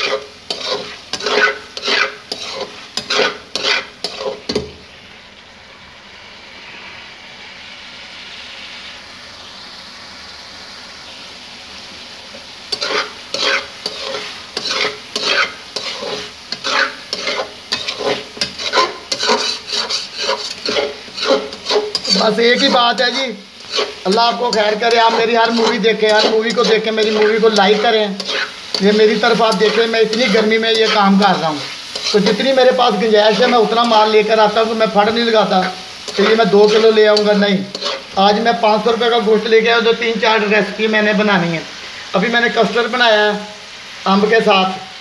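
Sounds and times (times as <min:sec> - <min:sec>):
metal spoon scraping a pan: 0:00.0 - 0:04.7, 0:12.3 - 0:38.3
gravy sizzling: 0:00.0 - 0:45.0.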